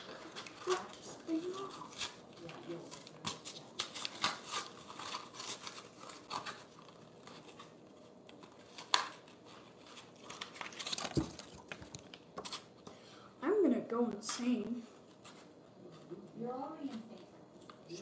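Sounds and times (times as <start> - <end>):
plastic packaging crinkling: 0.0 - 12.7.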